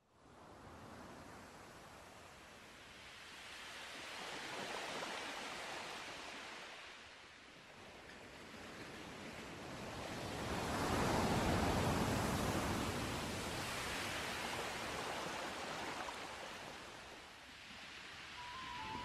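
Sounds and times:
waves washing: 0:09.4 - 0:19.0.

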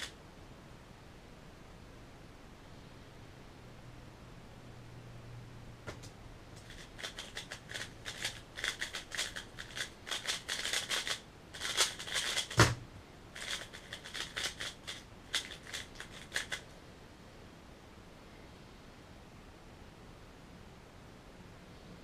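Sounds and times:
plastic puzzle cube clicking: 0:06.6 - 0:12.7, 0:13.4 - 0:16.6
hard thump: 0:12.5 - 0:12.8.

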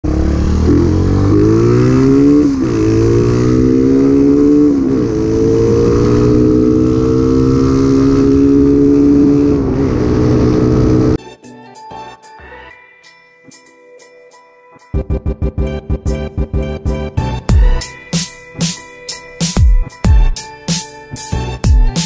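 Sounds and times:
motorcycle engine accelerating: 0:00.0 - 0:11.2.

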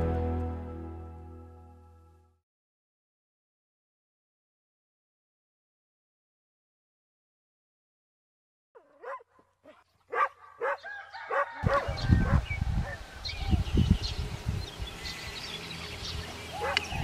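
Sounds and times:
dog barking: 0:08.8 - 0:13.0, 0:16.6 - 0:17.0.

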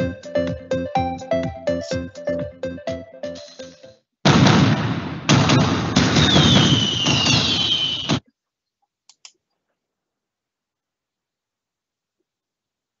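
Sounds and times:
fireworks bangs: 0:04.3 - 0:08.2
fireworks crackling: 0:04.4 - 0:08.2
descending fireworks whistles: 0:05.4 - 0:08.2.

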